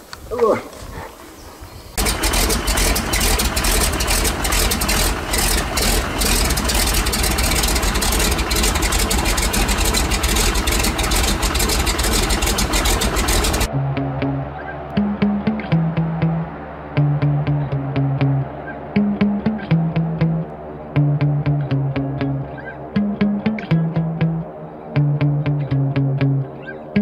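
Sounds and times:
propeller churning water: 2.0 - 13.7
propeller plane engine drone: 2.0 - 27.0.

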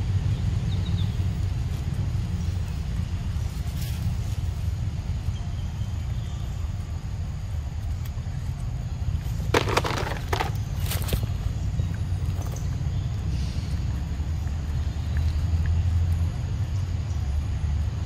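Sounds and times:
crackling rustles: 1.3 - 5.4, 7.8 - 12.8.

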